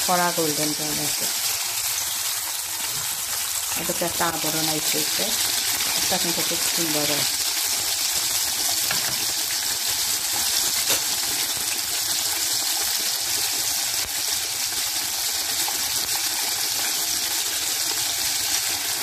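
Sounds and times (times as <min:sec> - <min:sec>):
oil sizzling and bubbling: 0:00.0 - 0:19.0.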